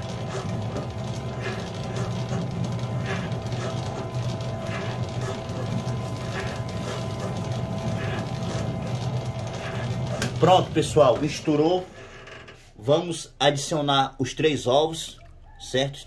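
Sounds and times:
dough mixer motor hum: 0:00.0 - 0:12.1.

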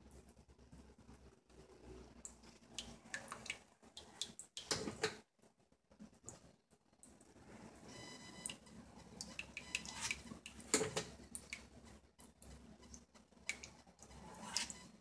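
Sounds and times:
cake comb scraping frosting: 0:09.9 - 0:10.3, 0:14.1 - 0:14.9.

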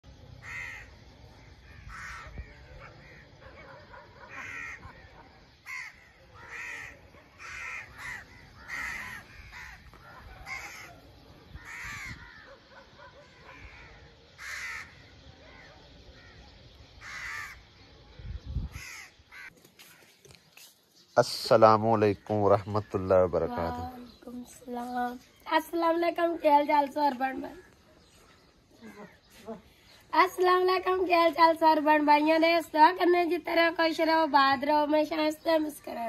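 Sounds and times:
crows cawing: 0:00.4 - 0:01.0, 0:01.6 - 0:03.5, 0:04.2 - 0:17.6, 0:18.7 - 0:20.2, 0:28.8 - 0:29.4.

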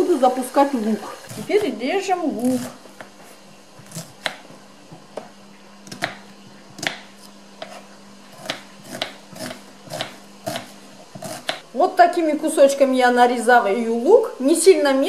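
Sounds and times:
knife tapping wooden cutting board: 0:05.9 - 0:07.8.

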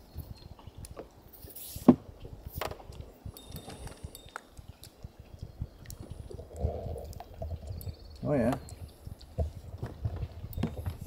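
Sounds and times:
fishing gear clicks and knocks: 0:02.4 - 0:11.0.

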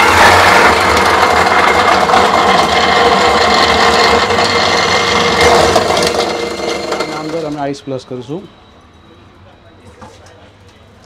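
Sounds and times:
crushed ice pouring into bowl: 0:00.0 - 0:07.6
ice crusher grinding ice: 0:00.0 - 0:08.5.

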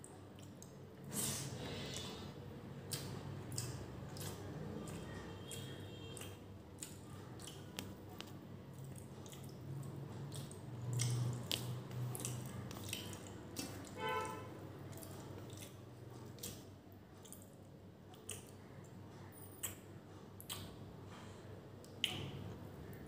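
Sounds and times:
wet squishing of food by hand: 0:00.0 - 0:19.8
chewing: 0:00.3 - 0:00.8, 0:01.8 - 0:19.0.

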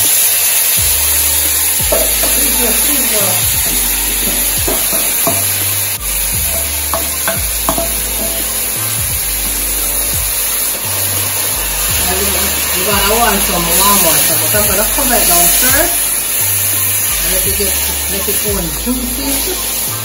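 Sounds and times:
meat sizzling in hot oil: 0:00.0 - 0:20.0.

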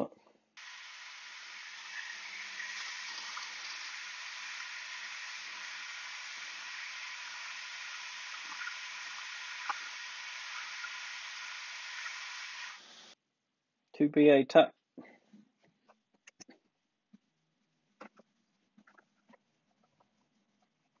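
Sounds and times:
lathe running with hiss: 0:00.6 - 0:13.2.

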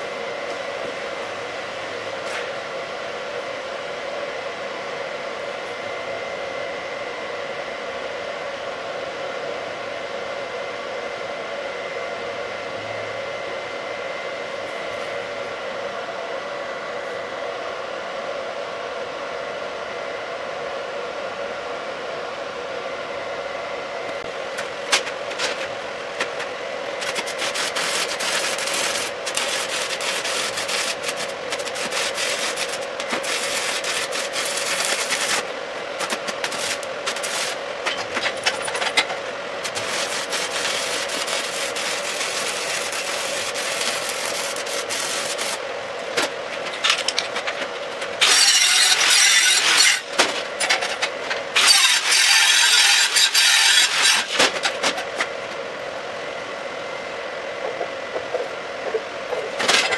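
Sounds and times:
welder hum: 0:00.0 - 0:08.2, 0:22.4 - 0:47.4, 0:48.2 - 0:59.6
welding arc crackling: 0:27.0 - 0:38.8, 0:39.6 - 0:45.6.

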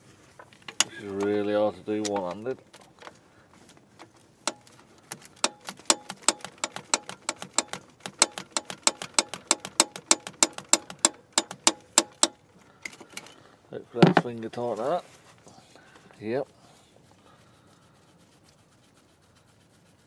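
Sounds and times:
socket ratchet clicking: 0:04.5 - 0:04.7, 0:05.4 - 0:12.4.

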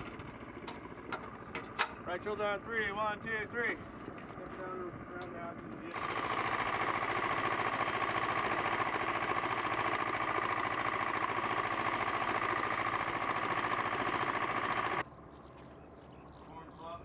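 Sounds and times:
steady machine whine: 0:00.0 - 0:15.0
engine with rapid pulse: 0:04.7 - 0:16.3.

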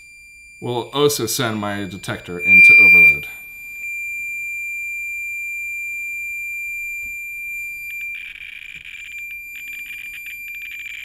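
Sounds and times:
high-pitched alarm tone: 0:02.4 - 0:03.2.

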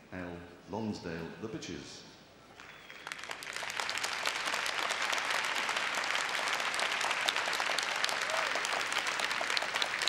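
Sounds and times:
crowd applauding: 0:02.6 - 0:10.0.

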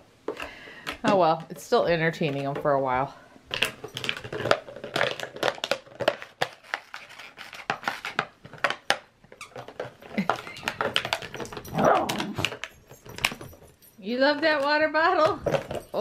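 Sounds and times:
dog chewing plastic bottle: 0:03.5 - 0:13.4
dog vocal sound: 0:11.7 - 0:12.6.

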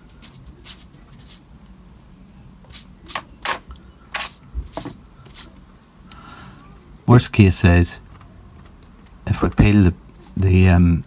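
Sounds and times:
sponge dabbing paint: 0:00.0 - 0:01.6.

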